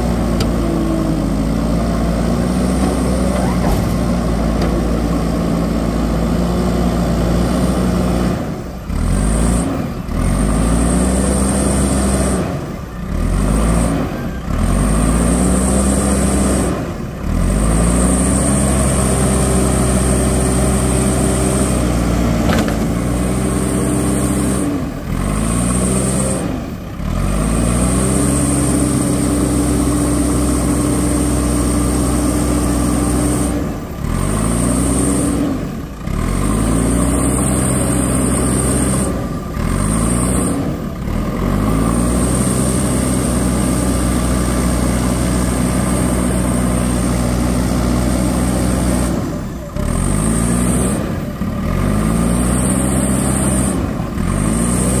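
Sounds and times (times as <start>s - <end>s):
diesel engine under load: 0.0s - 55.0s.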